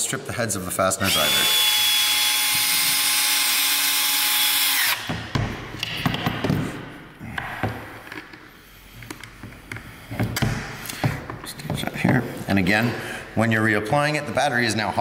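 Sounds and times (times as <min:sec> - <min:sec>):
cordless drill whining: 0:01.0 - 0:05.1.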